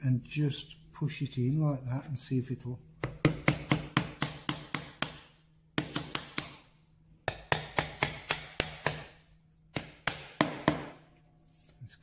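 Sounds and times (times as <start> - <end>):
small hammer tapping wood: 3.0 - 6.6, 7.2 - 9.1, 9.7 - 11.0.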